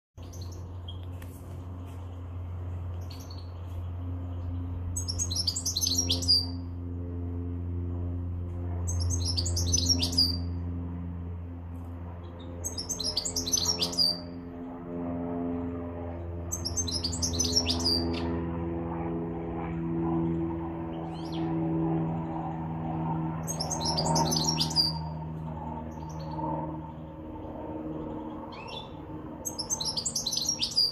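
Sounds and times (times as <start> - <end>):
goldfinch twittering song: 0.2 - 1.1, 3.0 - 3.8, 4.4 - 6.6, 8.8 - 10.6, 12.3 - 14.4, 16.5 - 18.3, 23.4 - 25.2, 28.0 - 30.9
low steady hum: 0.2 - 30.9.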